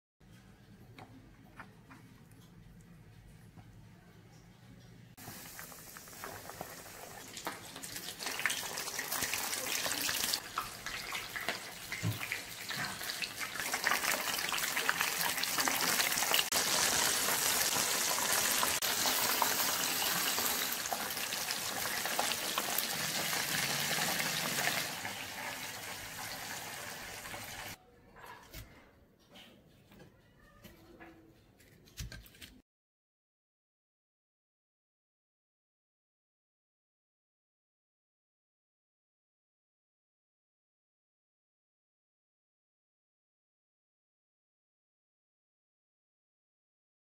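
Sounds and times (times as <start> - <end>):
oil sizzling while deep-frying: 5.2 - 27.8.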